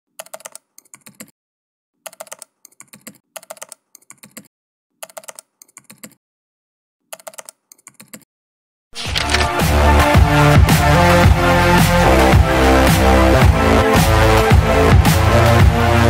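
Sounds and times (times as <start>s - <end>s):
computer keyboard typing: 0.1s - 1.3s, 2.0s - 6.2s, 7.1s - 8.2s, 9.0s - 9.6s.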